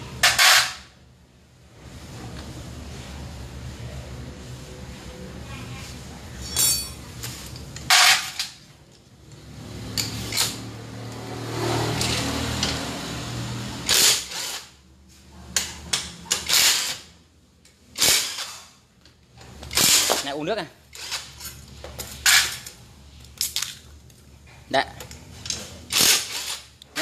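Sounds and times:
impact wrench bursts: 0:13.8 - 0:14.8, 0:16.3 - 0:17.1, 0:17.9 - 0:18.8, 0:19.7 - 0:21.4, 0:25.9 - 0:26.8.

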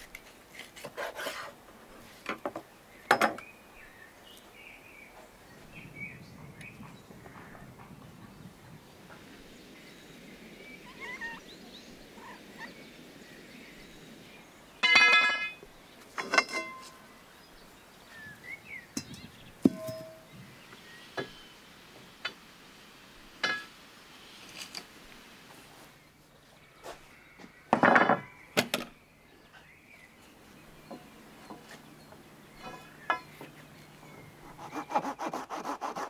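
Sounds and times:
birds chirping faintly: 0:02.0 - 0:35.4
sharp metal clinks and knocks: 0:14.8 - 0:15.6, 0:16.2 - 0:17.0, 0:19.0 - 0:20.3.

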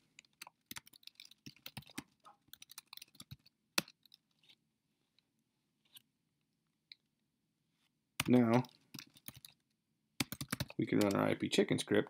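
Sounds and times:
laptop keyboard typing: 0:00.0 - 0:04.5, 0:08.2 - 0:09.6, 0:10.2 - 0:11.3.

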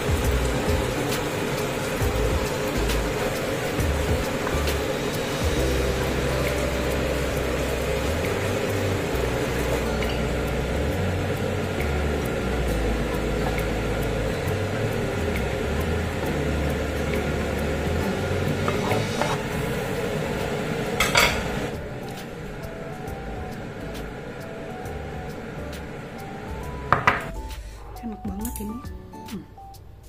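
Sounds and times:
sauce sizzling in a wok: 0:00.0 - 0:23.1.

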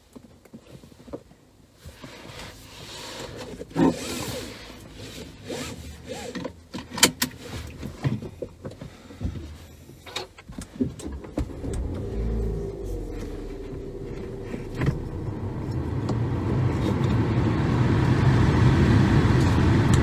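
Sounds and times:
seatbelt rustling: 0:01.8 - 0:15.8
car engine starting and idling: 0:03.6 - 0:20.0.

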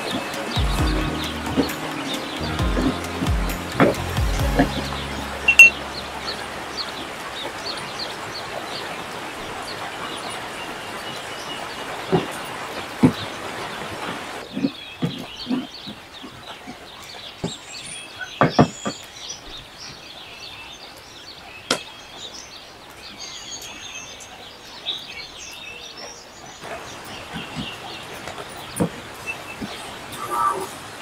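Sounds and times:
birds chirping: 0:00.0 - 0:31.0.

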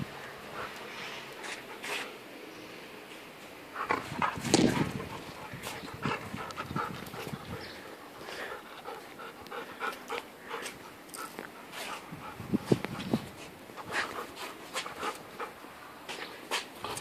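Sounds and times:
dog panting: 0:03.7 - 0:15.7.

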